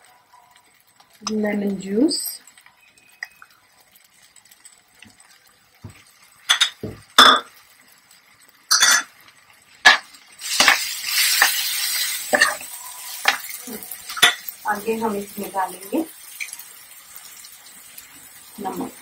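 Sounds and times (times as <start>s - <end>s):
food sizzling in hot oil: 0.0s - 19.0s
utensils clinking on frying pan: 6.4s - 7.6s, 8.7s - 9.2s, 9.8s - 15.2s.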